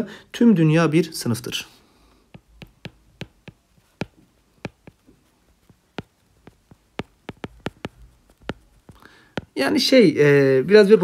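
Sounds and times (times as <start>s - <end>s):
stylus tapping on tablet screen: 2.3s - 9.8s.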